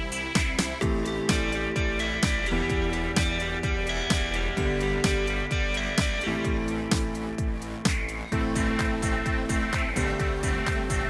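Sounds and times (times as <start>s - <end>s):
background music with low thumps: 0.0s - 11.0s.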